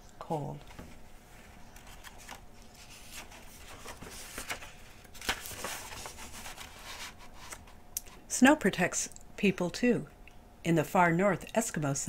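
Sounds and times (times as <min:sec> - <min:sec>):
paper page turning: 0:01.7 - 0:07.7.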